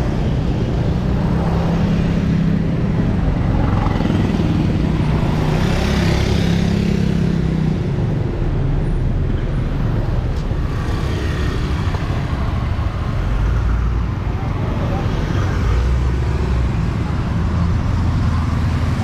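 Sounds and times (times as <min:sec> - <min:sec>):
low traffic rumble: 0:00.0 - 0:19.0
vehicles passing: 0:00.0 - 0:19.0.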